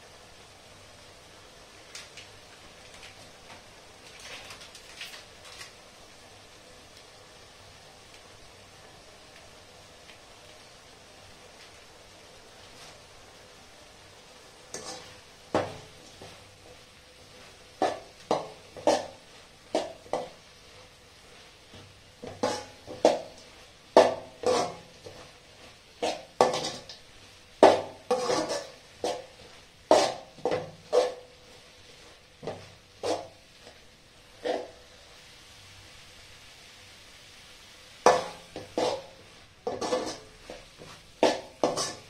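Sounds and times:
ladle clanking and scraping pan: 0:14.7 - 0:16.4, 0:17.2 - 0:20.4, 0:21.7 - 0:25.4, 0:26.0 - 0:27.0, 0:27.6 - 0:31.3, 0:32.4 - 0:33.8, 0:38.1 - 0:42.0.

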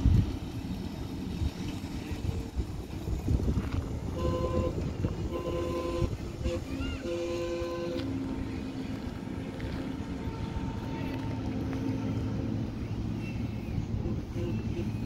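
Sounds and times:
low running rumble: 0:00.0 - 0:15.0
low steady note: 0:00.0 - 0:15.0
locomotive horn blasts: 0:04.0 - 0:13.1, 0:13.9 - 0:15.0.

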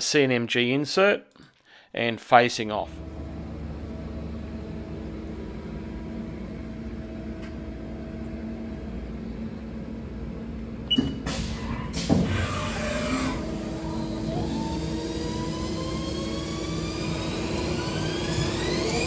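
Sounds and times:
lathe humming: 0:03.0 - 0:09.9, 0:12.6 - 0:19.0
machining and coolant rushing: 0:11.3 - 0:19.0.

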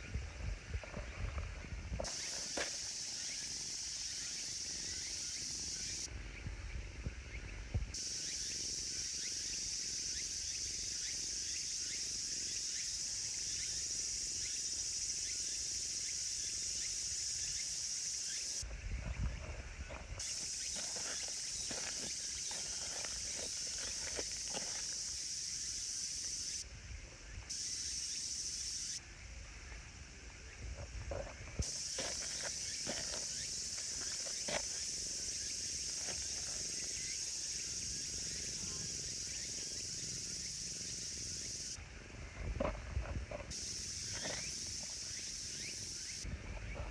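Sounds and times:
high-pitched insect chorus: 0:00.0 - 0:46.9.

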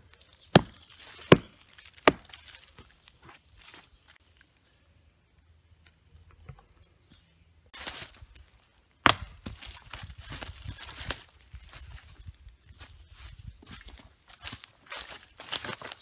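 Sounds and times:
dry leaves rustling: 0:00.0 - 0:04.2, 0:07.8 - 0:08.8, 0:09.4 - 0:16.0
footsteps crunching through leaves: 0:00.2 - 0:04.2, 0:07.8 - 0:08.6, 0:09.4 - 0:16.0
knife blade striking wood: 0:09.0 - 0:09.5.

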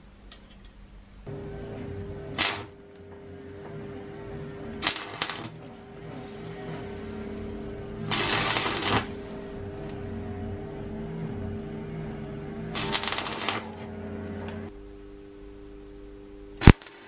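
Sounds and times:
steady low hum: 0:00.0 - 0:17.0
welding arc crackling: 0:02.3 - 0:03.0, 0:04.8 - 0:10.1, 0:12.7 - 0:13.9, 0:16.6 - 0:17.0.

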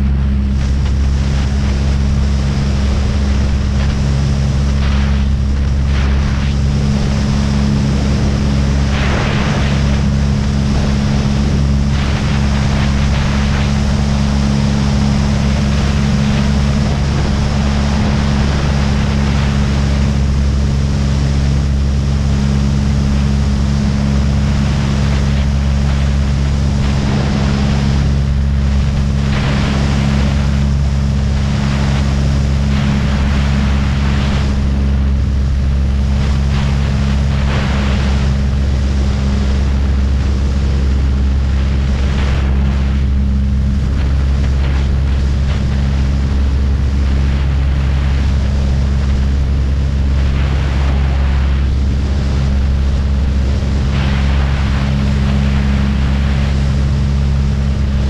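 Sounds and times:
aircraft engine running: 0:00.0 - 0:58.0
rush of wind: 0:00.0 - 0:58.0.

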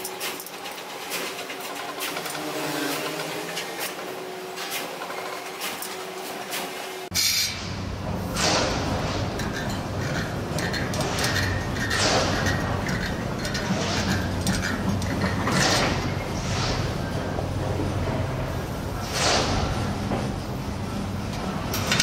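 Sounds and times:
metal spokes clinking and scraping: 0:00.0 - 0:07.6, 0:08.4 - 0:17.5.

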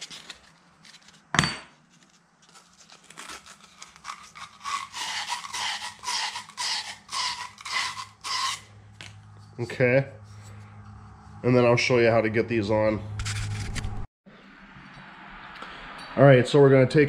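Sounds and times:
sandpaper rubbing copper pipe: 0:02.5 - 0:10.6.

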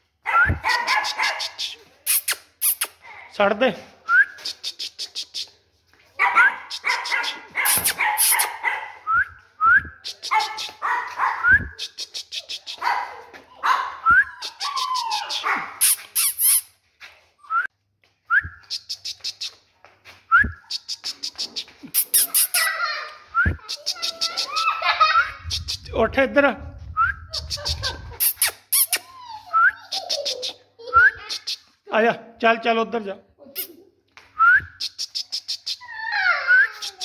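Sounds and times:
puppies yapping and whining: 0:12.8 - 0:16.6, 0:27.3 - 0:30.6, 0:35.8 - 0:37.0.

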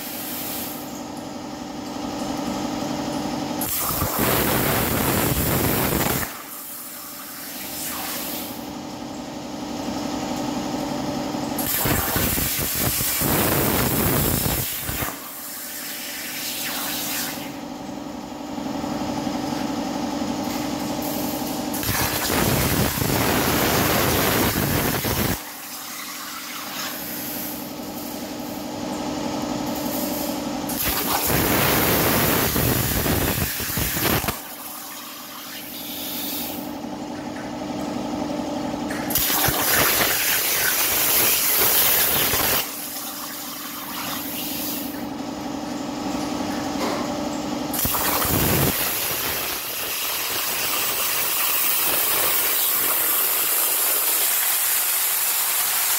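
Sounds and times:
plasma torch hissing: 0:00.0 - 0:00.9, 0:03.6 - 0:06.7, 0:07.3 - 0:08.6, 0:11.6 - 0:17.6, 0:21.7 - 0:28.2, 0:30.7 - 0:34.5, 0:35.4 - 0:36.7, 0:39.1 - 0:42.7, 0:43.9 - 0:45.0, 0:47.7 - 0:55.2
steady machine hum: 0:17.4 - 0:53.6.

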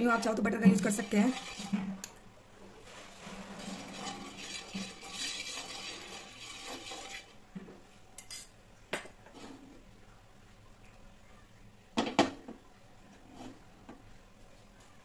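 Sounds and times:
metal spoon scraping frying pan: 0:00.0 - 0:02.2, 0:03.1 - 0:07.4.

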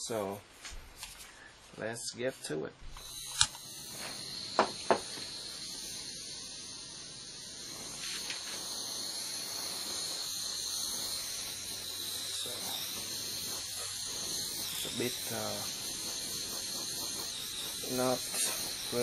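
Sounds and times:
blowtorch flame hissing: 0:02.8 - 0:19.0
sharp clicks: 0:03.2 - 0:03.6.

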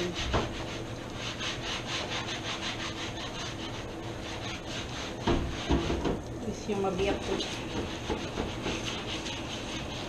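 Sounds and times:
scrubbing a cutting board: 0:00.0 - 0:10.0
knock: 0:05.2 - 0:06.2.

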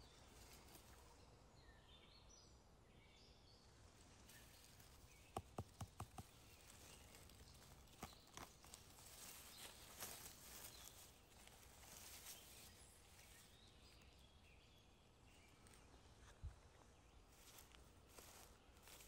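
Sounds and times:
dry leaves crackling and rustling: 0:00.3 - 0:01.0, 0:04.2 - 0:05.2, 0:06.2 - 0:14.0, 0:17.3 - 0:19.0.

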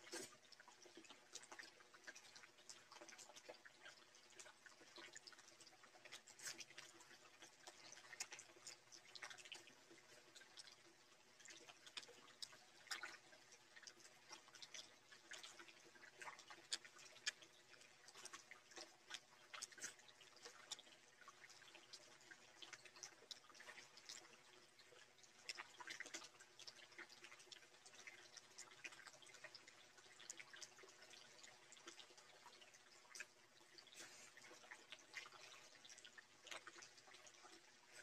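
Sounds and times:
mouth chewing: 0:13.8 - 0:20.9.

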